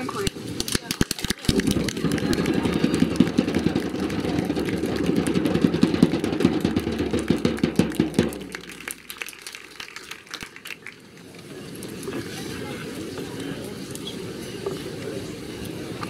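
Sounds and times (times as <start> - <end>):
crowd applauding: 0.9 - 11.4.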